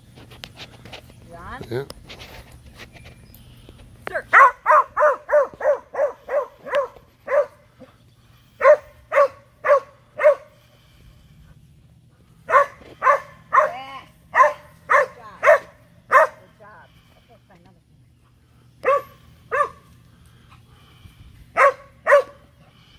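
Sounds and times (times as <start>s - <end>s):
dog barking: 4.3s - 7.6s, 8.6s - 10.5s, 12.5s - 16.4s, 18.8s - 19.8s, 21.6s - 22.4s.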